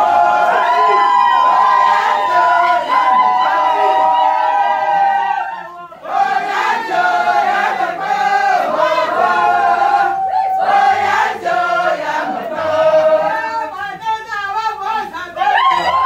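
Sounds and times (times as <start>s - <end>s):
women singing a chant: 5.9s - 16.0s.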